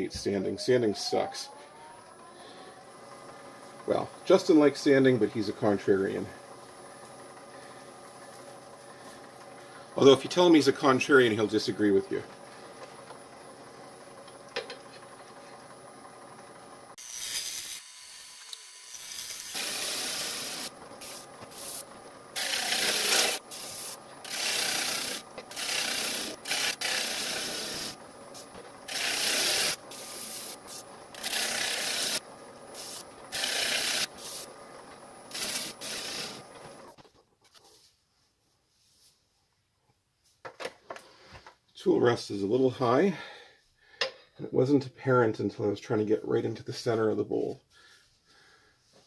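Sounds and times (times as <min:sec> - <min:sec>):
wood lathe running hum: 0:00.0 - 0:36.9
gouge scraping wood on lathe: 0:19.6 - 0:21.8, 0:22.4 - 0:28.0, 0:28.9 - 0:32.2, 0:33.3 - 0:34.2, 0:35.3 - 0:36.4.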